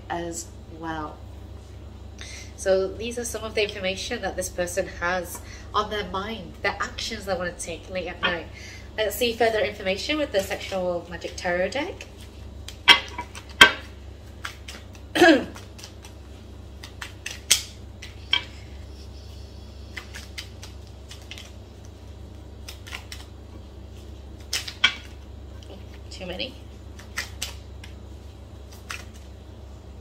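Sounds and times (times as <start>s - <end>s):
cards rustling: 10.4s - 18.6s, 19.8s - 26.0s, 26.9s - 29.4s.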